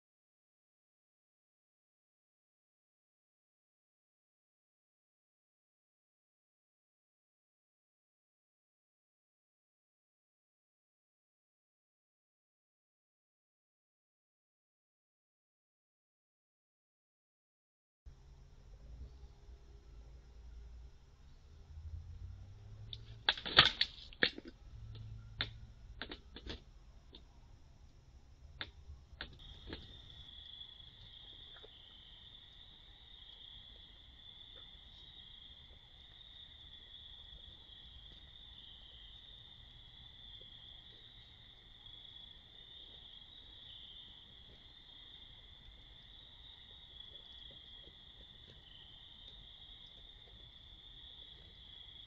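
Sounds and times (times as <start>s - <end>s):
crickets chirring: 20.0s - 52.0s.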